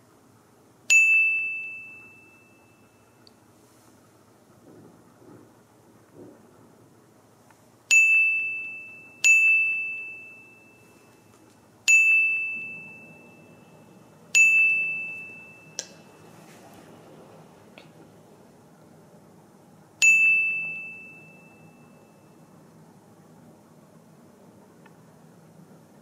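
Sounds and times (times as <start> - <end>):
high bell-like ding: 0.9 - 3.2, 7.9 - 11.3, 11.9 - 16.3, 20.0 - 22.5.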